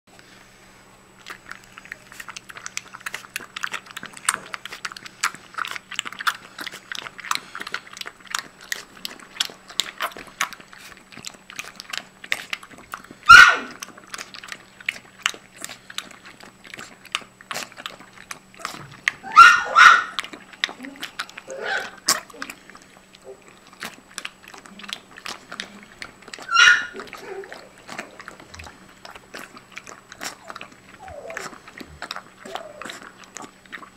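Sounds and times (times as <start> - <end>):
puppy lapping from metal bowl: 1.3 - 33.9
puppy high-pitched cry: 13.3 - 13.8, 18.6 - 20.2, 26.4 - 27.7, 30.4 - 31.6.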